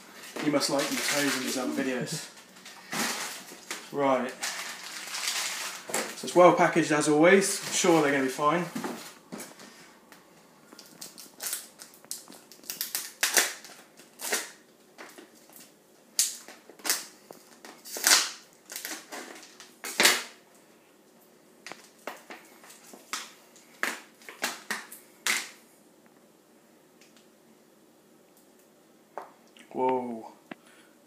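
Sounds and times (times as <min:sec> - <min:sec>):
plastic tub crackling: 0:00.2 - 0:06.3.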